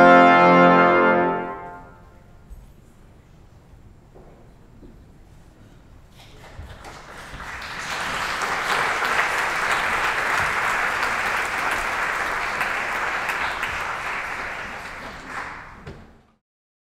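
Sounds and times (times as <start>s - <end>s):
audience applause: 6.3s - 16.2s.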